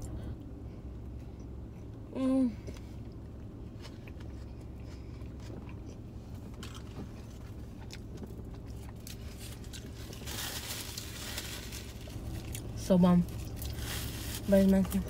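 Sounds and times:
car cabin hum: 0.0s - 15.0s
person chewing food: 2.7s - 10.0s
rustle: 9.0s - 12.6s, 13.4s - 15.0s.

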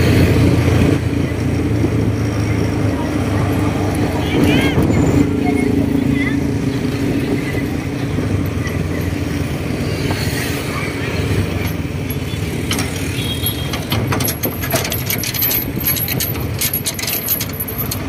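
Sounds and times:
road noise: 0.0s - 18.0s
metallic clinking and rattling: 11.4s - 18.0s.

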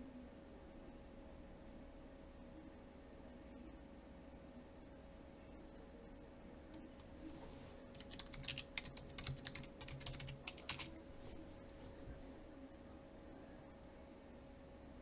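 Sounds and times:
faint keyboard typing: 7.9s - 11.4s.

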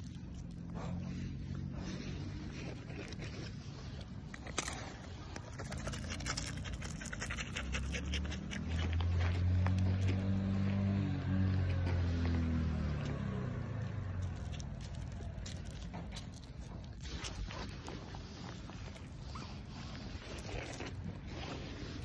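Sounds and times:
deer sniffing and puffing: 0.2s - 10.6s, 14.2s - 22.0s.

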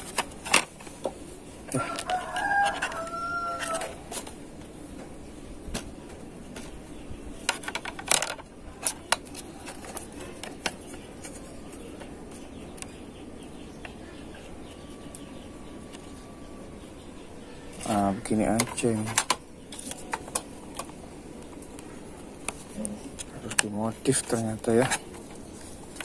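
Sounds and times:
rooster crowing: 1.7s - 4.1s.

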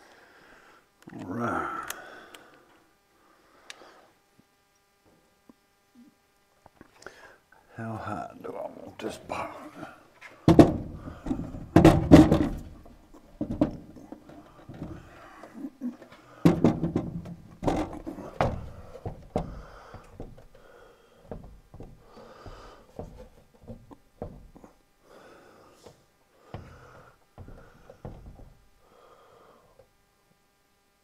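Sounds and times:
breathing through nose: 1.8s - 4.2s, 18.8s - 21.3s, 22.0s - 23.0s, 25.0s - 28.0s, 28.8s - 29.9s
clicks and knocks on metal box: 10.5s - 12.8s, 16.4s - 20.5s
soft taps and handling noise: 21.2s - 24.8s, 25.8s - 28.7s.

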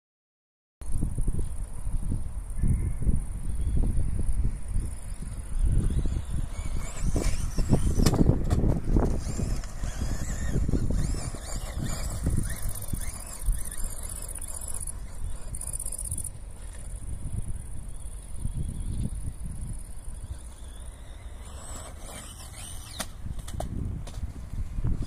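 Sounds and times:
rc car electric motor whining: 4.5s - 24.2s.

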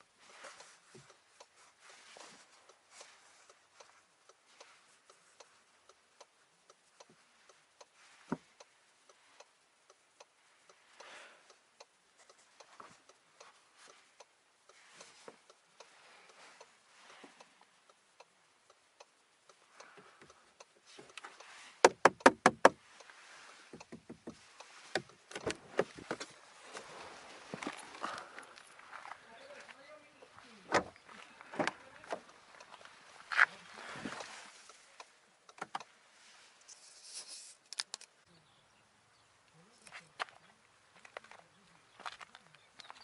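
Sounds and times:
handling clicks and rustles: 19.0s - 36.0s.

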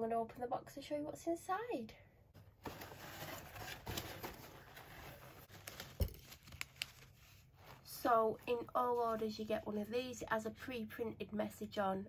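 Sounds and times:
rustling packing peanuts: 2.6s - 9.4s.

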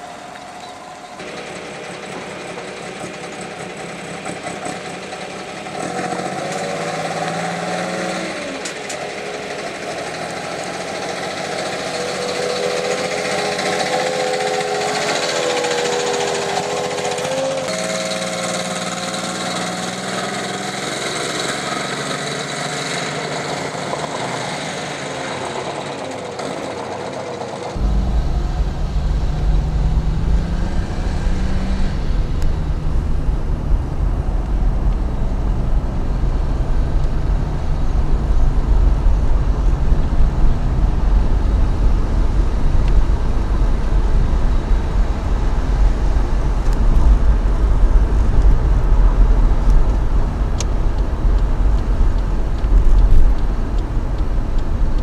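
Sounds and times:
truck engines revving: 0.0s - 55.0s
road rumble inside a car: 27.7s - 55.0s.

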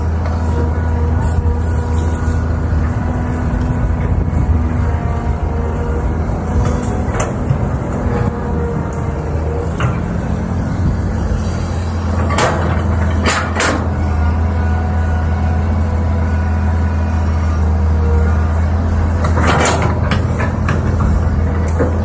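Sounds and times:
excavator diesel engine running: 0.0s - 22.0s
metallic clanks of excavator bucket: 12.1s - 14.0s, 19.2s - 22.0s.

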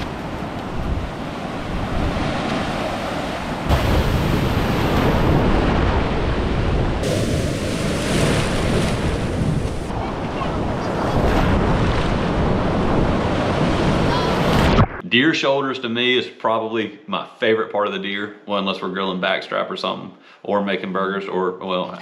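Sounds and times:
wind buffeting the microphone: 0.0s - 14.8s
surf breaking on a beach: 0.0s - 15.0s.

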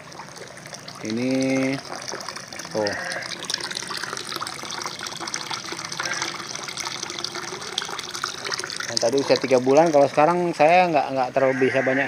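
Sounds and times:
fish splashing: 0.0s - 10.2s
pond water churning: 0.0s - 12.0s.

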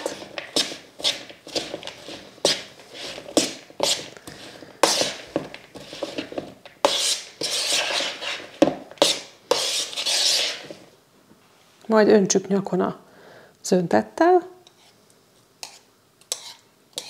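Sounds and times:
spoon scraping and tapping bowl: 15.6s - 17.0s.

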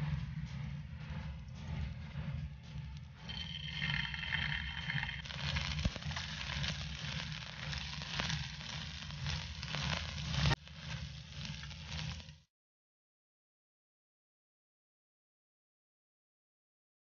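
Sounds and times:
oil sizzling in a frying pan: 3.3s - 12.4s.

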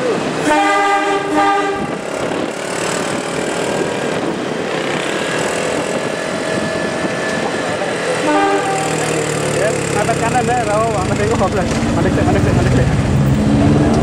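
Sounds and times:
road traffic din: 0.0s - 14.0s
locomotive horn blasts: 0.4s - 2.1s, 8.2s - 9.1s.

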